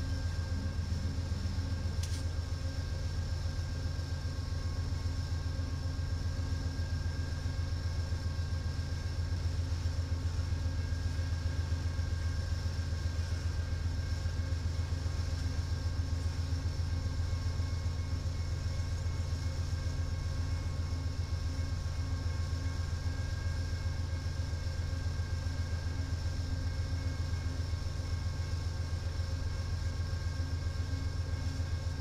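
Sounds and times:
high whine: 0.0 - 5.2
locomotive engine rumble: 0.0 - 32.0.

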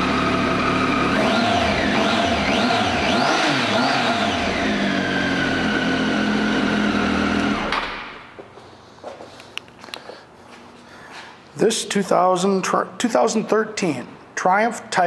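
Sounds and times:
motorcycle engine revving: 0.0 - 8.2.

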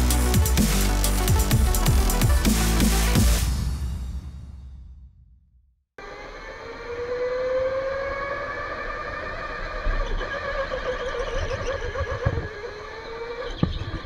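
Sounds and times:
electric go-kart motor whining: 6.0 - 14.0
higher whining tones: 6.0 - 14.0.

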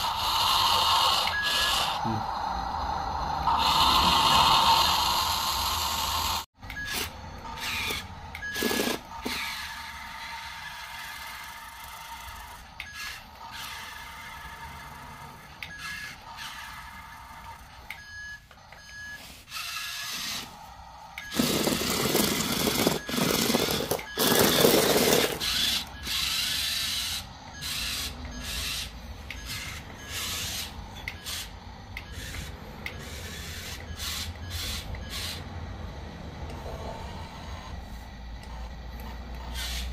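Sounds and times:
small electric motors whirring: 0.0 - 35.7, 36.4 - 39.9
electronic reversing beep: 1.0 - 2.2, 17.9 - 19.4, 22.4 - 26.6.

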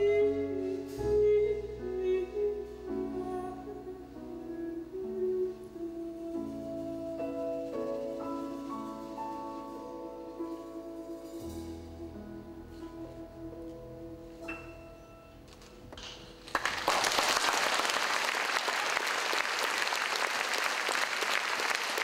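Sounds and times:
jazz trio piano notes: 0.0 - 16.5
audience applause: 16.0 - 22.0.

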